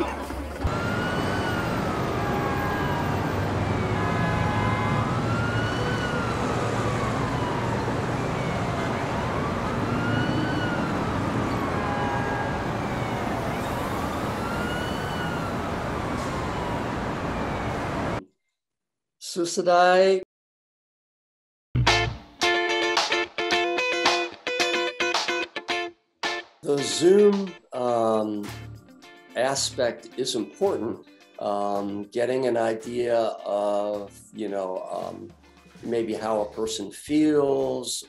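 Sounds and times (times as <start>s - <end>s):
emergency vehicle siren wailing: 0.0s - 18.2s.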